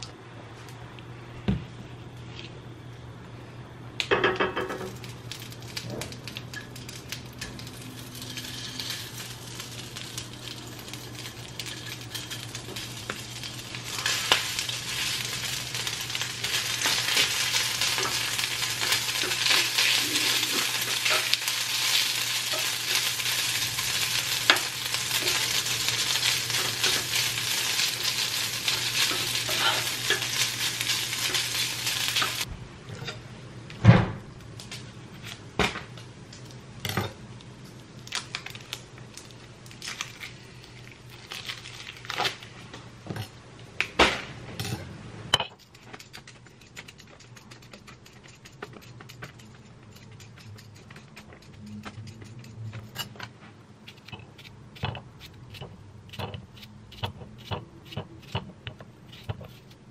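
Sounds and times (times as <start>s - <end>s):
low steady hum: 0.0s - 59.9s
food sizzling in a frying pan: 4.4s - 32.5s.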